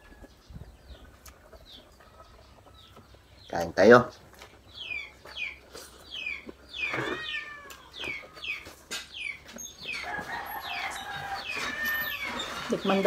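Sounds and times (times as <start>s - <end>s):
cat meowing: 6.9s - 8.4s.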